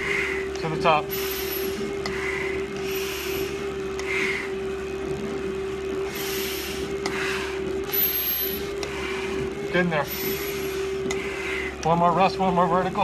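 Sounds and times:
hard breathing through respirator mask: 0.0s - 4.7s, 6.0s - 7.8s, 8.5s - 11.8s
stair-climbing machine hum: 0.0s - 13.0s.

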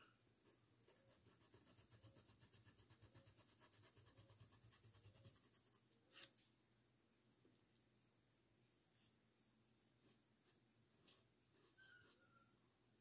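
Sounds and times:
paintbrush scrubbing on cloth: 0.4s - 6.3s.

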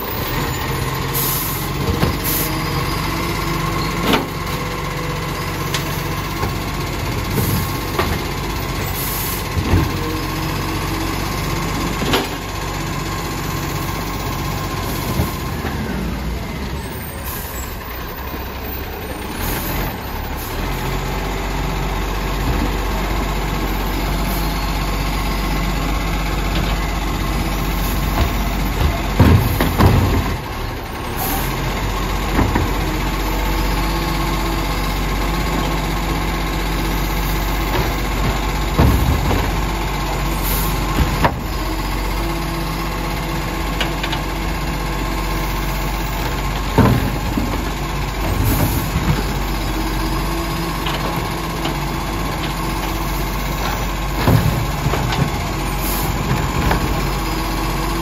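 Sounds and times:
garbage truck engine running: 0.0s - 58.0s
bins and lift arm clunking: 0.1s - 58.0s.

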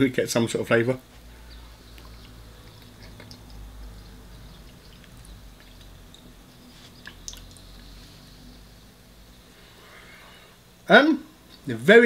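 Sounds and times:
low steady hum: 0.0s - 12.0s
mouth clicks: 1.9s - 3.6s
wet chewing: 1.9s - 6.3s.

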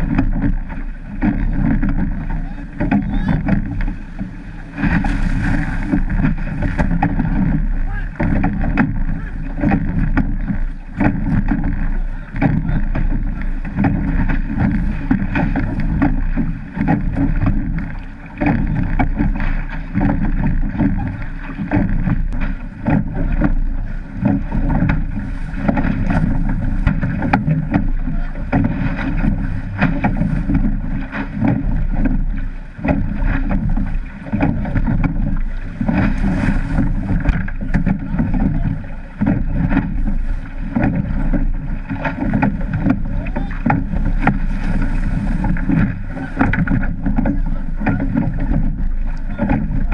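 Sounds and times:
water rushing and splashing: 0.0s - 49.9s
wind buffeting microphone: 0.0s - 49.9s.

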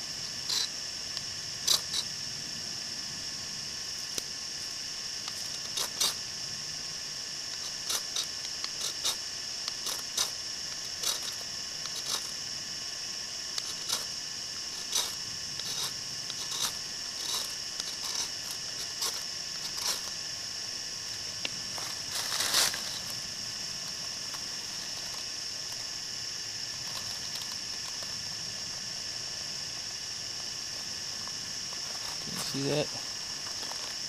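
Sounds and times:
fire steel scraping: 14.7s - 20.1s.

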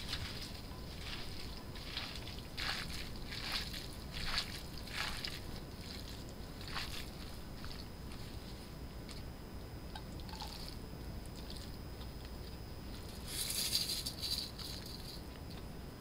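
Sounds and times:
plastic shaker rustling: 13.0s - 15.2s.

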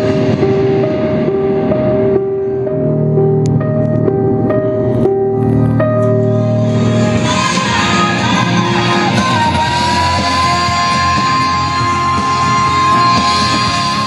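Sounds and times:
song with singing over speakers: 6.3s - 14.0s.

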